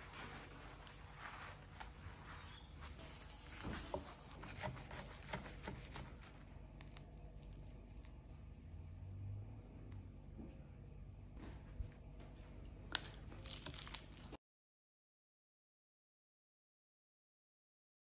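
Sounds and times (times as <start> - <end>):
knife cutting crisp tortilla: 3.3 - 6.4.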